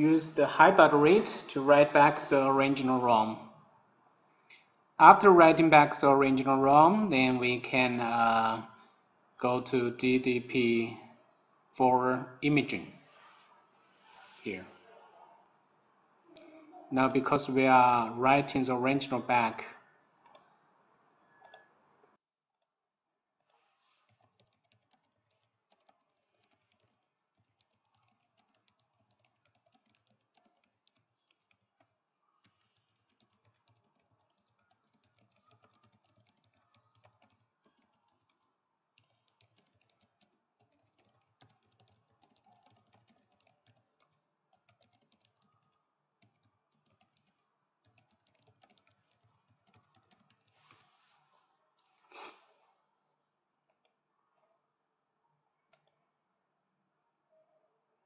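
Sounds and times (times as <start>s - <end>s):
typing on computer keyboard: 18.2s - 20.6s, 21.3s - 21.7s, 23.4s - 51.0s, 53.6s - 54.0s, 55.7s - 56.0s.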